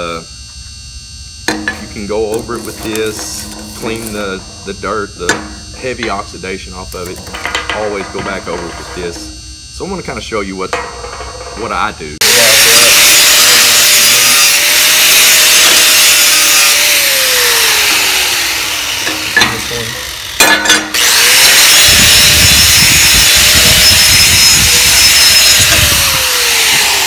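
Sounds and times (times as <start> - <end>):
angle grinder motor whine: 0.0 - 27.0
wire wheel scrubbing metal: 1.5 - 9.4, 10.7 - 27.0.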